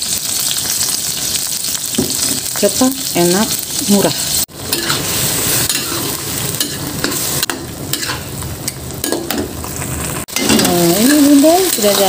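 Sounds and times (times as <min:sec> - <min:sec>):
fish frying in oil: 0:00.0 - 0:12.0
spatula scraping a wok: 0:03.6 - 0:10.7.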